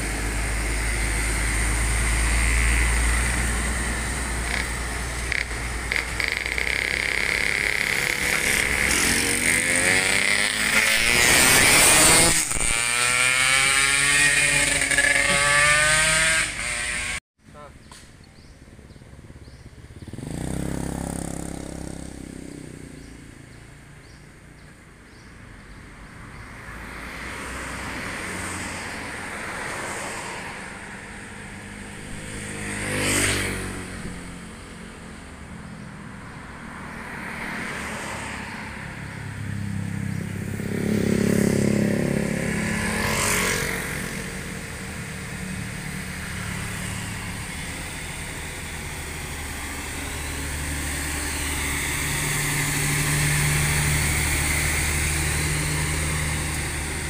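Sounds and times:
truck diesel engine: 0.0s - 16.3s, 43.7s - 57.0s
motorcycle passing: 0.0s - 17.7s, 18.3s - 25.3s, 26.3s - 57.0s
road traffic passing: 0.0s - 57.0s.

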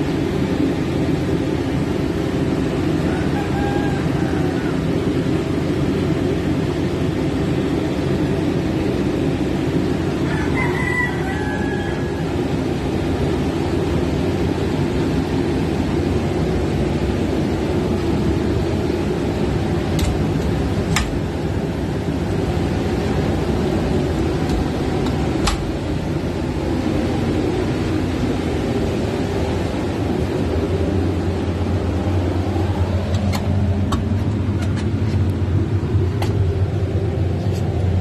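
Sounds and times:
diesel generator droning: 0.0s - 38.0s
faint rooster crowing: 2.8s - 5.3s, 10.1s - 12.8s.

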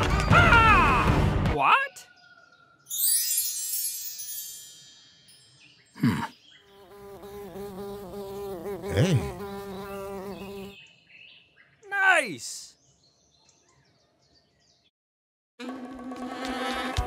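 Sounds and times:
cartoon bee buzzing: 6.7s - 10.8s, 15.6s - 17.0s.

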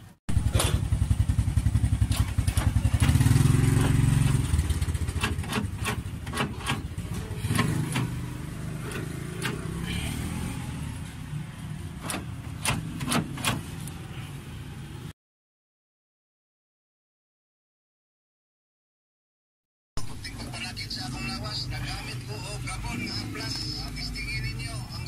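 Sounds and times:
vehicle engine rumbling: 0.0s - 15.1s, 20.0s - 25.0s
door lock actuator clacks: 12.0s - 13.6s.

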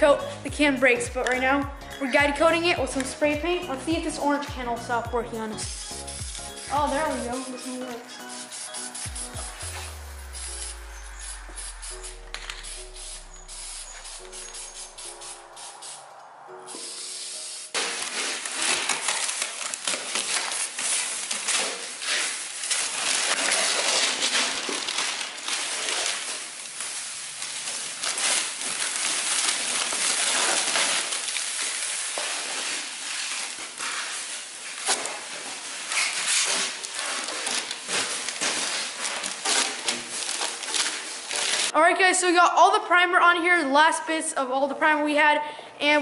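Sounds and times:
plastic film crinkling and tearing: 5.6s - 41.8s.

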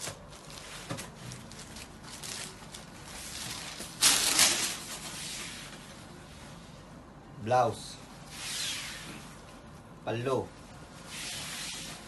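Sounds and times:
silk fabric rustling: 10.8s - 12.0s.

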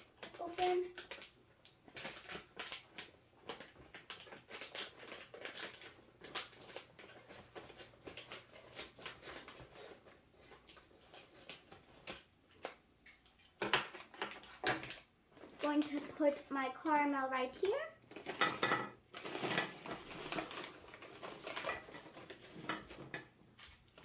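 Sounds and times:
plastic bag crinkling: 0.0s - 24.0s
scissors snipping plastic: 0.1s - 16.1s.

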